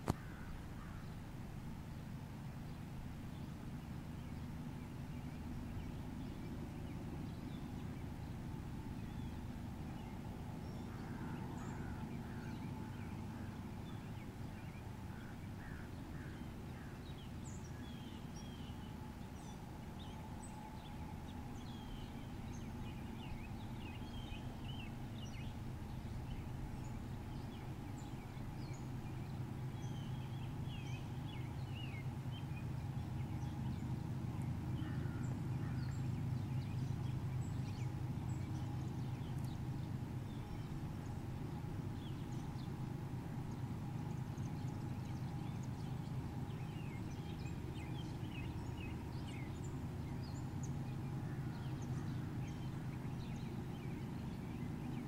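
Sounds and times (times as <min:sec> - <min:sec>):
steady low rumble: 0:00.0 - 0:55.0
birds chirping: 0:09.0 - 0:55.0.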